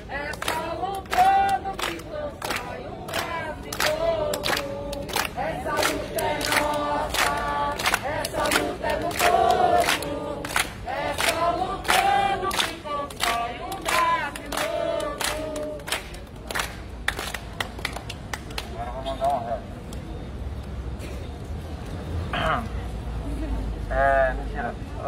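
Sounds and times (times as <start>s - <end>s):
crowd chanting in unison: 0.0s - 16.1s
handclapping: 0.1s - 20.0s.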